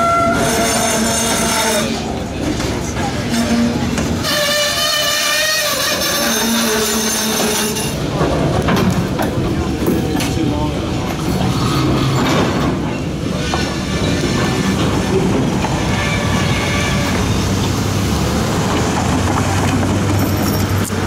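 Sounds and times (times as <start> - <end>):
train cars rolling over rails: 0.0 - 21.0
wheels clicking over rail joints: 0.0 - 21.0
faint high wheel squeal: 3.2 - 8.0, 15.8 - 17.4.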